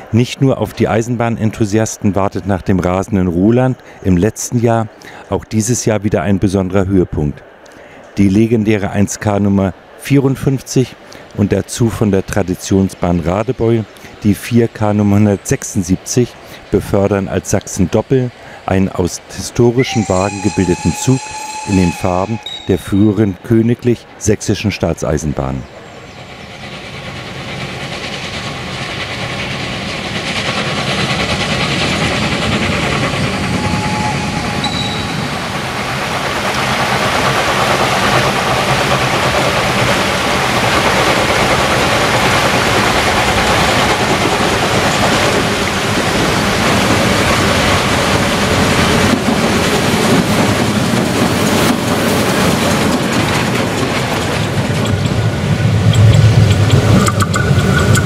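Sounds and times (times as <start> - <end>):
coaches clattering on rails: 9.2 - 58.0
steam locomotive exhaust: 18.1 - 24.2, 26.0 - 58.0.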